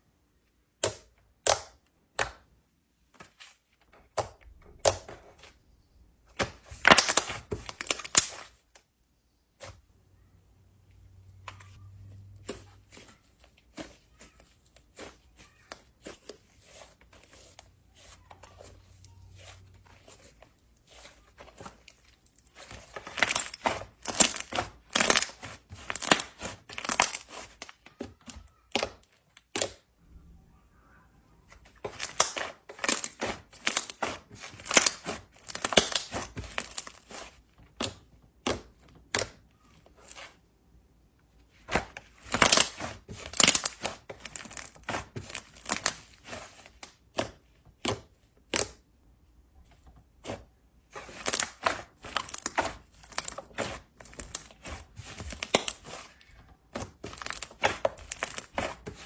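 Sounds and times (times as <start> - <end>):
slime crackling and popping: 6.7 - 8.6, 22.0 - 27.7, 31.8 - 37.3, 41.8 - 47.2, 50.9 - 59.0.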